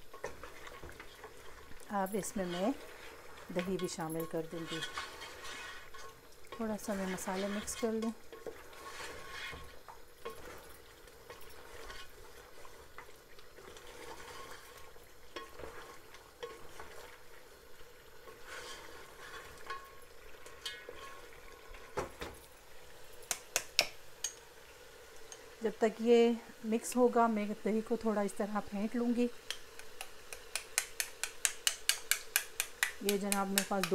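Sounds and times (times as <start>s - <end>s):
spatula stirring and scraping: 0.0s - 22.2s, 29.3s - 33.9s
meat frying in oil: 0.0s - 33.9s
spatula knocking against pot: 29.4s - 33.9s.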